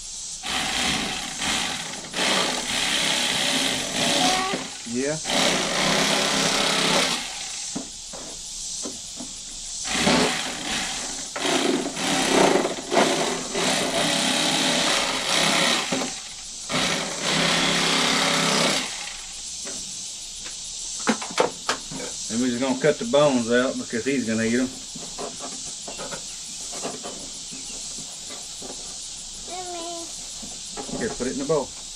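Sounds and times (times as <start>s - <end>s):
electric fillet knife buzzing: 0.4s - 7.5s, 9.8s - 19.2s.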